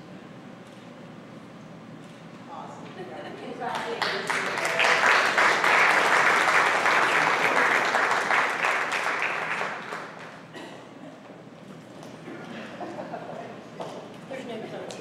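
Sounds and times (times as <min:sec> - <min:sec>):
applause: 0:03.7 - 0:10.4.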